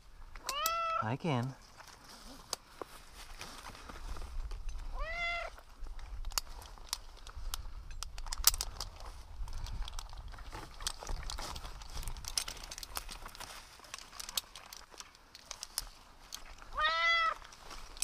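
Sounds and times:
cat meowing: 0:00.5 - 0:01.0, 0:04.9 - 0:05.6, 0:16.7 - 0:17.4
climbing rope and gear clicks: 0:01.4 - 0:18.0.

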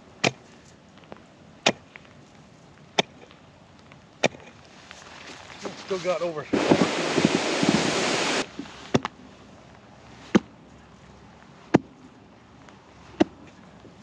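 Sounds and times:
loud rushing noise: 0:06.5 - 0:08.5.

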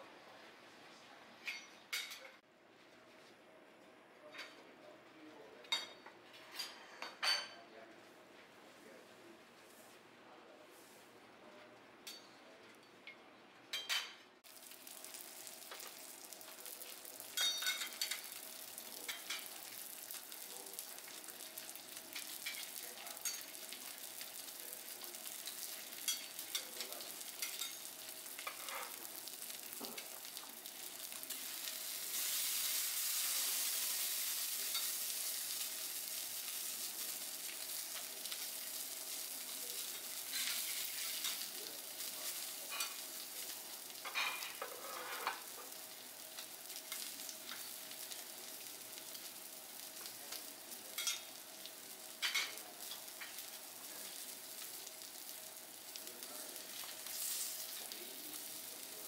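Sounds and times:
spatulas clinking on griddle: 0:01.4 - 0:02.3, 0:12.0 - 0:12.4, 0:13.1 - 0:14.3, 0:17.2 - 0:18.4, 0:19.0 - 0:19.7, 0:22.1 - 0:23.6, 0:25.4 - 0:29.0, 0:34.7 - 0:35.1, 0:39.8 - 0:41.5, 0:42.7 - 0:43.0, 0:44.0 - 0:45.6, 0:50.9 - 0:51.3, 0:52.2 - 0:53.5
food sizzling on griddle: 0:14.4 - 0:59.0.

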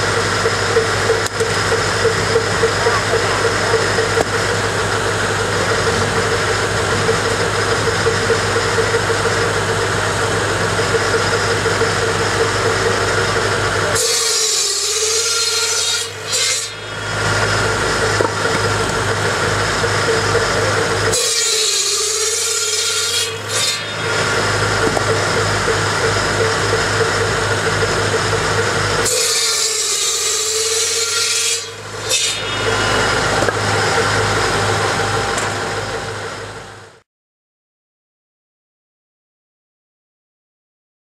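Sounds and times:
tractor engine idling: 0:00.0 - 0:14.0, 0:16.2 - 0:21.2, 0:23.9 - 0:29.1, 0:31.8 - 0:37.0
saw rasping through log: 0:00.0 - 0:36.0
saw blade humming: 0:00.0 - 0:37.0.

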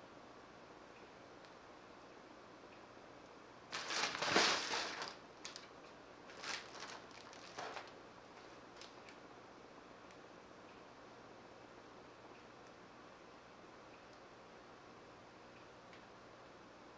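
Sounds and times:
fabric tunnel rustling: 0:03.7 - 0:05.7, 0:06.3 - 0:08.0.

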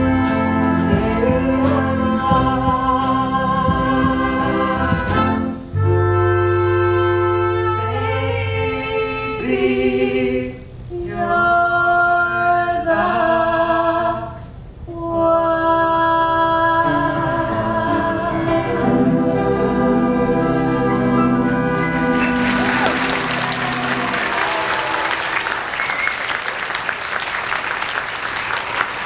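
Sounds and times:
boy and girl singing duet: 0:00.0 - 0:05.6, 0:07.8 - 0:21.7
backing music: 0:00.0 - 0:10.3, 0:16.5 - 0:27.3.

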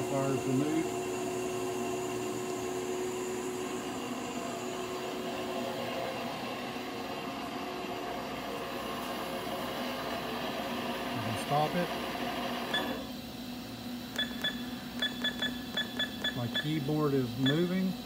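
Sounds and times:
milling machine hum and whine: 0:00.0 - 0:18.0.

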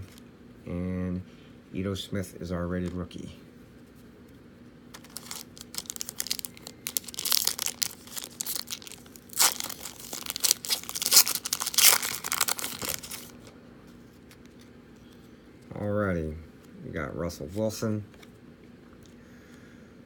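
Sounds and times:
foil wrapper tearing and crinkling: 0:04.9 - 0:13.4.

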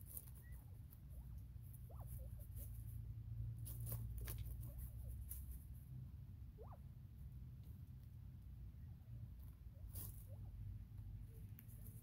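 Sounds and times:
pecking and scratching in hay: 0:00.0 - 0:06.0, 0:09.4 - 0:12.0
low steady rumble: 0:00.0 - 0:12.0
quail calling: 0:06.6 - 0:06.8.

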